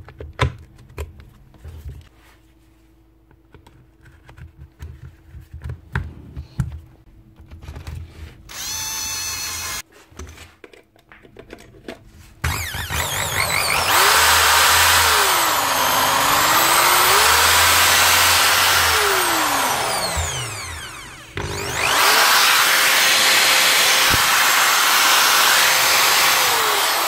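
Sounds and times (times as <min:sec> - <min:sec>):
electric drill motor running: 0:08.5 - 0:09.8, 0:12.4 - 0:27.0.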